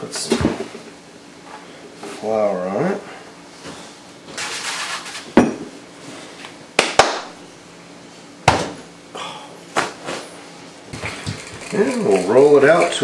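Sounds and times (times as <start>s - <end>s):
hands clapping: 6.8s - 7.3s.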